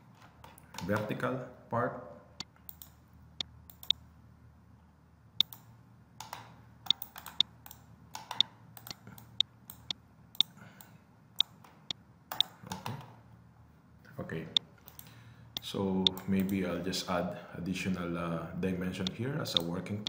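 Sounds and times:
computer mouse clicking: 2.7s - 3.0s, 3.7s - 4.0s, 5.4s - 10.5s, 11.4s - 13.1s, 14.8s - 16.6s.

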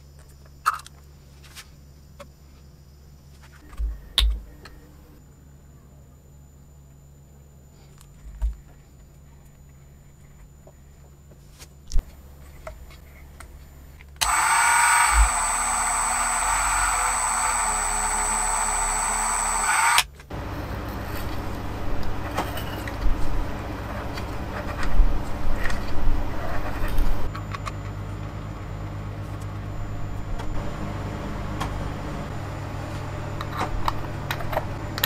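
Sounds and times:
low mechanical hum: 0.0s - 35.0s
rotary tool motor whine: 14.2s - 20.1s.

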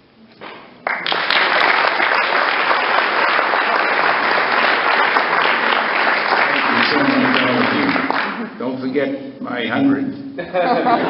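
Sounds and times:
crowd clapping: 0.8s - 8.6s.

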